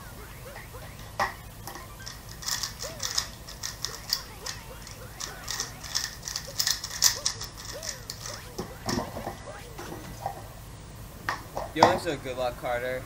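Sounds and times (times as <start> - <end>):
puzzle cube clicking: 0.4 - 9.8.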